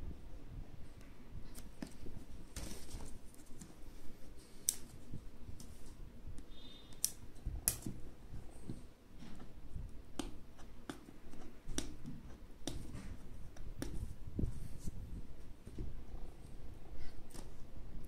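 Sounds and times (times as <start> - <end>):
scissors snipping tape: 6.9 - 7.9.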